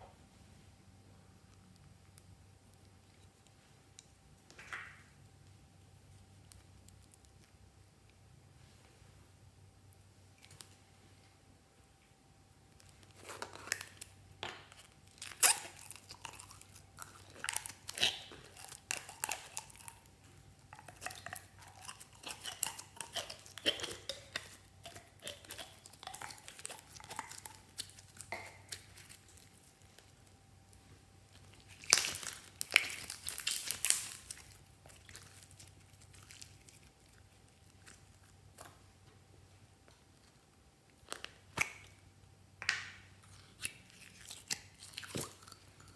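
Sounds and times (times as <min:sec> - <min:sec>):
slime crackling and popping: 0:12.7 - 0:30.4, 0:31.3 - 0:38.8.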